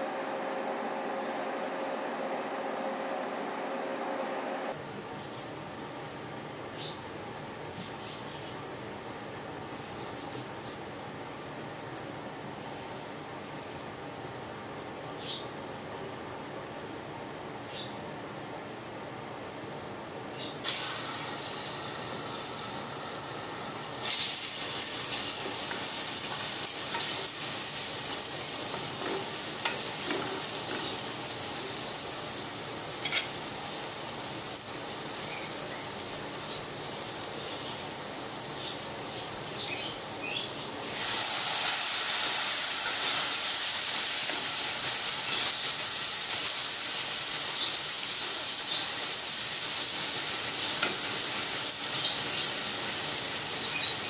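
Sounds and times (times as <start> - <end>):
paste sizzling in hot oil: 20.6 - 54.0
spatula stirring in pan: 24.0 - 31.8, 50.5 - 53.6.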